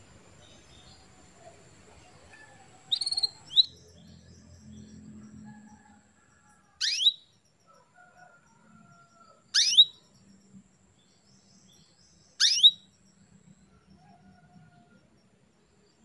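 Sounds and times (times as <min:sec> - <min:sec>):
canary chirps: 0:00.4 - 0:05.6, 0:06.8 - 0:07.4, 0:09.0 - 0:10.2, 0:11.1 - 0:13.1.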